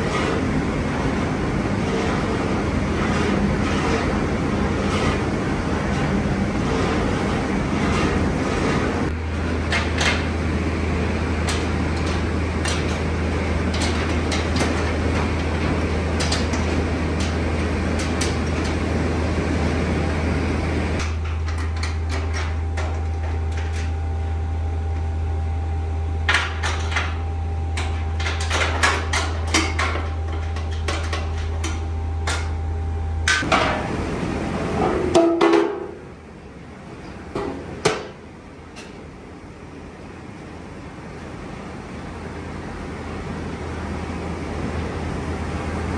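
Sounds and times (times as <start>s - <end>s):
machinery low hum: 0.0s - 45.9s
metal clanks and knocks: 34.8s - 36.0s.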